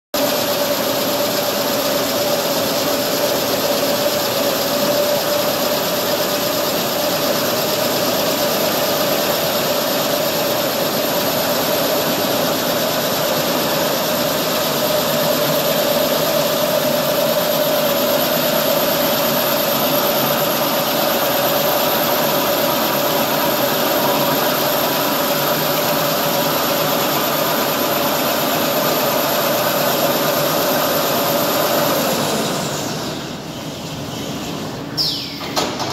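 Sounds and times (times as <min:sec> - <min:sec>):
paper rewinding machine running: 0:00.2 - 0:32.8.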